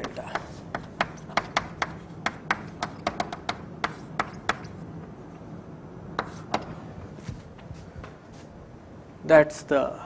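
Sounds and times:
chalk tapping on blackboard: 0:00.0 - 0:04.8, 0:06.2 - 0:06.7.

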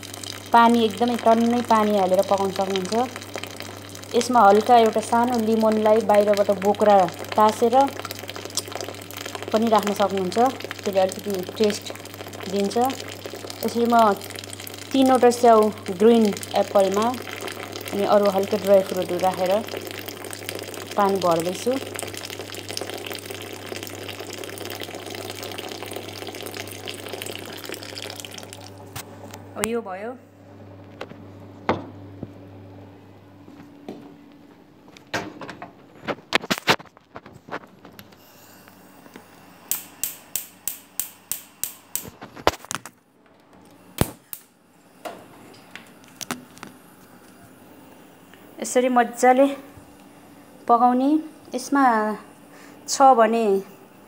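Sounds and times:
water pouring into a pot: 0:00.0 - 0:29.0
steady low hum: 0:00.0 - 0:54.0
stove igniter clicking: 0:39.7 - 0:42.1.

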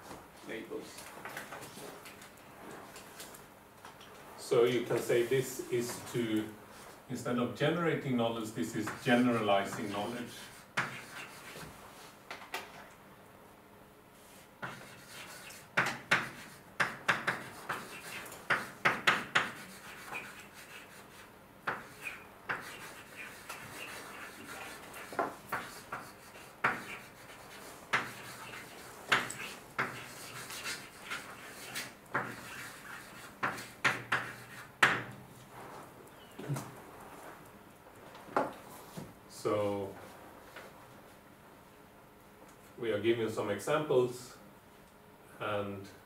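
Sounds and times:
writing on a board: 0:08.8 - 0:11.7, 0:14.6 - 0:35.1.

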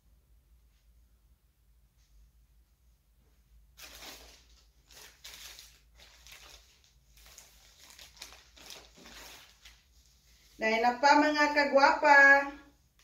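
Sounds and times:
plastic bag crinkling: 0:03.8 - 0:10.6.

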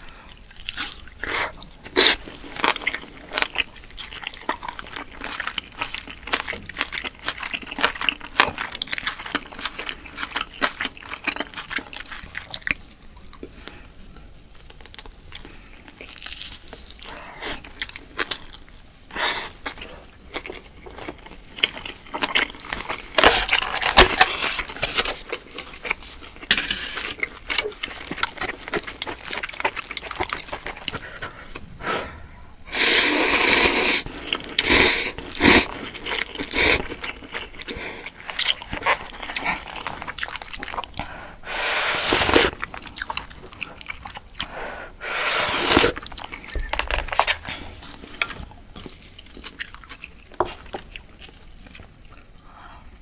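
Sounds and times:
chewing meat: 0:00.0 - 0:31.7, 0:33.4 - 0:45.0, 0:45.7 - 0:53.0
slurping noodles: 0:31.8 - 0:37.0, 0:41.0 - 0:42.8, 0:44.4 - 0:46.0.

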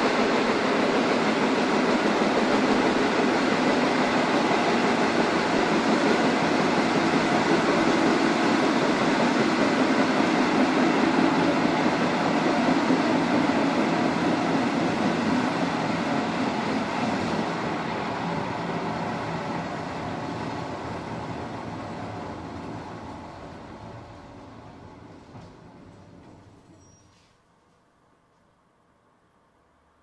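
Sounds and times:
train running noise: 0:00.0 - 0:27.4.

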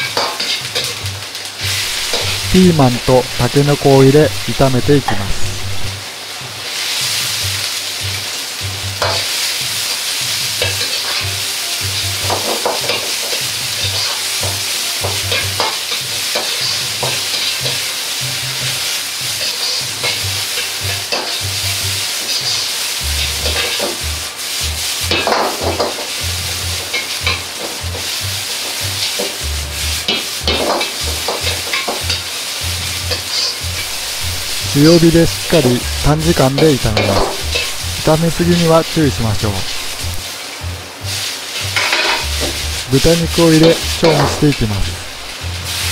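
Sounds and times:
vegetables sizzling in a wok: 0:00.0 - 0:45.9
metal ladle scraping a wok: 0:37.0 - 0:38.0.

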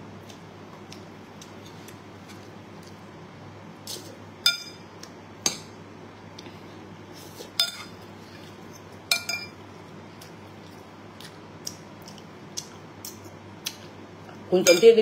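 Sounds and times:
spoon and fork clinking on bowl: 0:09.1 - 0:09.6, 0:14.6 - 0:14.9.

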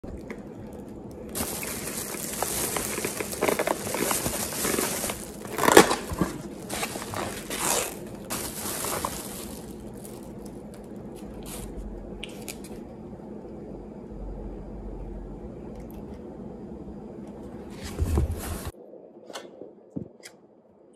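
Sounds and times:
plastic bag rustling: 0:00.0 - 0:11.8, 0:17.8 - 0:18.8
takeout containers clicking: 0:01.2 - 0:09.8.

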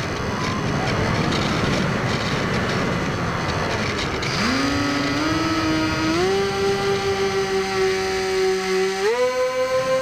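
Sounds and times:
rush of air and propeller: 0:00.0 - 0:10.0
electric motor whine rising: 0:04.2 - 0:10.0.

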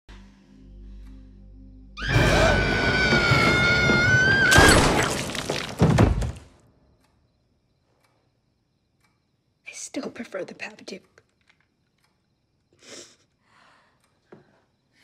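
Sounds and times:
film score music: 0:00.1 - 0:04.5.

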